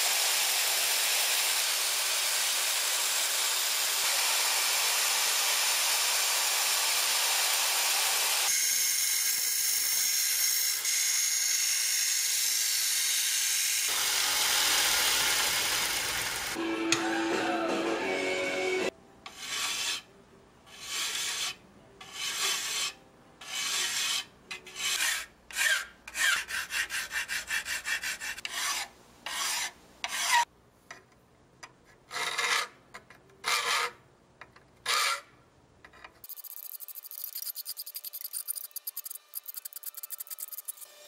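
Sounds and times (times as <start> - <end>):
hand file rasping on metal: 19.3 - 20.1, 20.7 - 30.5.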